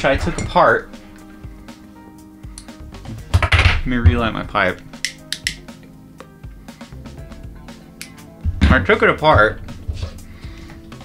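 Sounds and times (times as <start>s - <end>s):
soft music with held tones: 0.0s - 11.0s
lighter clicks: 4.8s - 5.7s, 8.0s - 8.2s.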